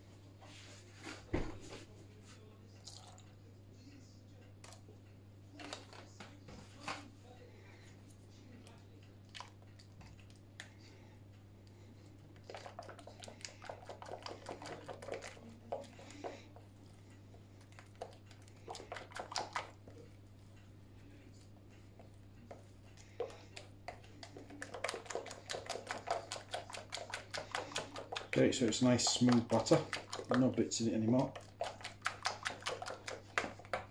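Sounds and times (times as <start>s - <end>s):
steady low hum: 1.9s - 33.9s
utensil tapping a mixing bowl: 22.0s - 33.9s.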